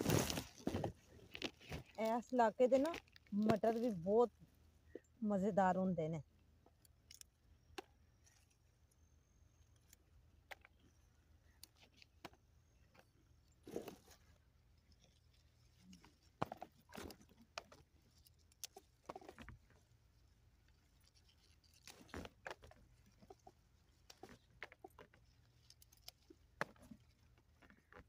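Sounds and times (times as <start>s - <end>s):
rustling of plants: 0.0s - 5.5s, 11.4s - 28.0s.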